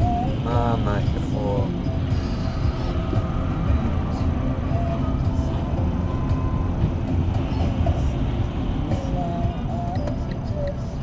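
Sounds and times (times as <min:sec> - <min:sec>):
car rumble inside cabin: 0:00.0 - 0:11.0
tyre hiss on wet road: 0:02.1 - 0:04.3.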